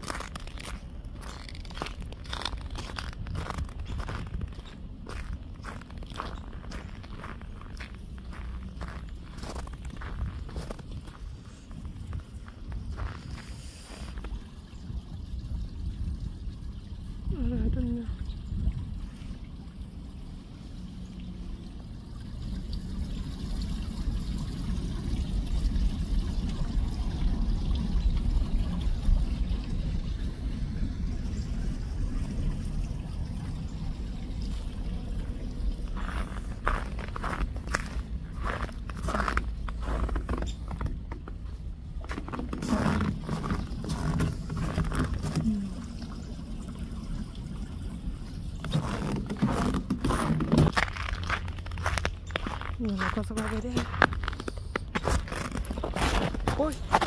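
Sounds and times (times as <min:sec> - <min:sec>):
footsteps crunching in snow: 0:00.0 - 0:14.3, 0:36.0 - 0:45.5, 0:48.7 - 0:57.0
wind rumble on microphone: 0:00.0 - 0:19.6
water rushing over a weir: 0:00.0 - 0:52.8
creek trickling under ice: 0:00.0 - 0:57.0.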